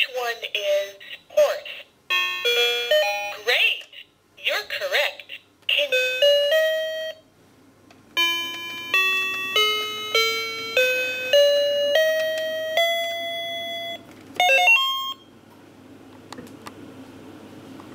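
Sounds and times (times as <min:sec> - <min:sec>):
toy keyboard beeping notes: 0:02.1 - 0:03.5, 0:08.2 - 0:15.2.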